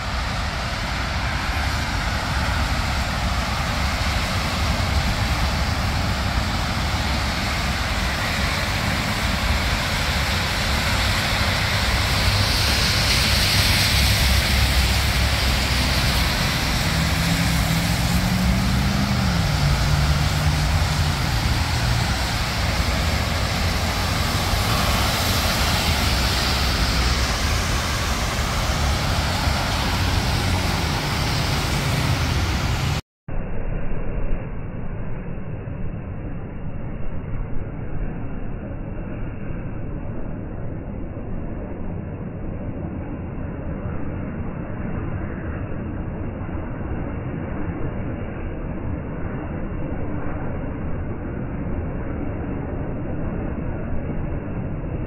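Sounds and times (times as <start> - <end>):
heavy engine hum: 0.0 - 33.0
traffic on wet roads: 0.0 - 33.0
vehicle hissing past: 0.0 - 33.0.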